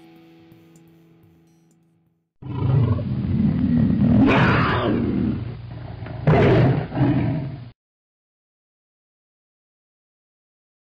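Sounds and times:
animal roaring: 0:02.4 - 0:07.7.

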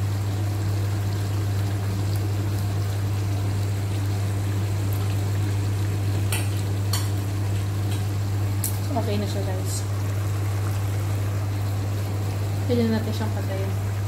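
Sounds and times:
stove burner humming and hissing: 0:00.0 - 0:14.0.

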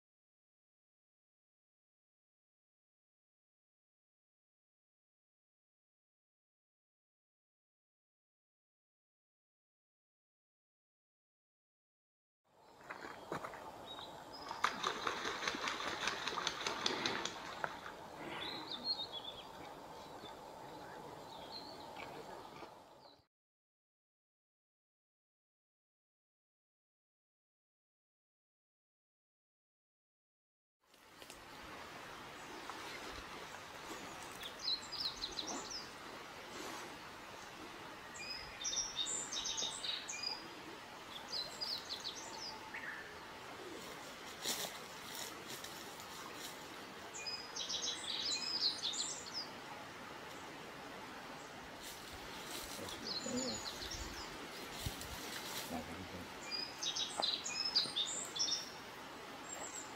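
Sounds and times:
quiet outdoor ambience: 0:12.5 - 0:23.3, 0:30.8 - 0:59.9
songbird chirping: 0:12.5 - 0:23.3, 0:30.9 - 0:59.9
wings beating and feet splashing: 0:12.8 - 0:18.3
steady background hiss: 0:13.5 - 0:23.0, 0:30.9 - 0:59.9.

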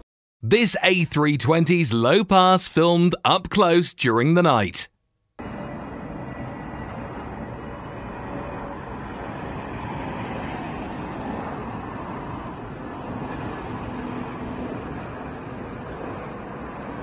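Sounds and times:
jet airliner flying overhead: 0:05.4 - 0:17.0.

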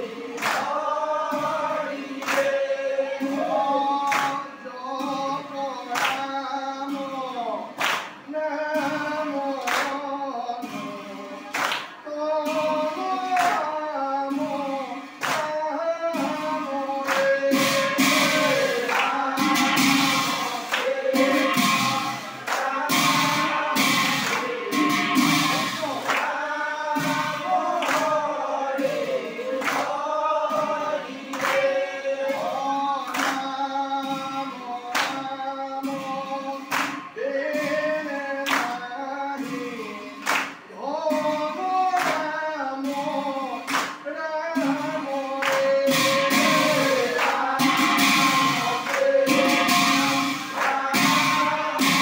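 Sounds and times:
men's chorus chanting: 0:00.0 - 0:52.0
small hand cymbals struck: 0:45.8 - 0:52.0.

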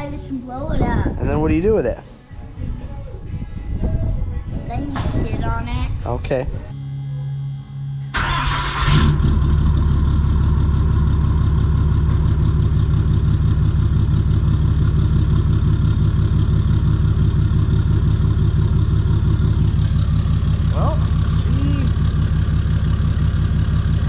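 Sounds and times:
diesel truck engine idling: 0:07.2 - 0:24.0.

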